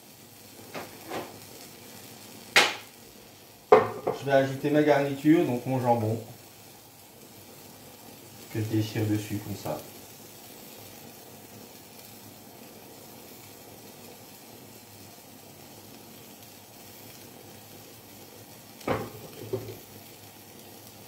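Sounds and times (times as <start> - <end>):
dough sizzling in oil: 0.0 - 21.0.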